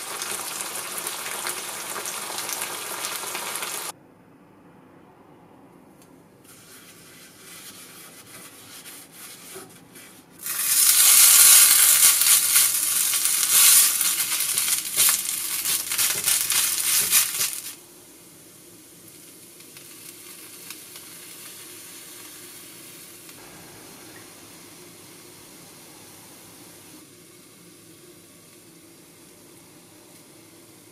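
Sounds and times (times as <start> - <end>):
rice sizzling in a skillet: 0.0 - 3.9, 10.4 - 25.8.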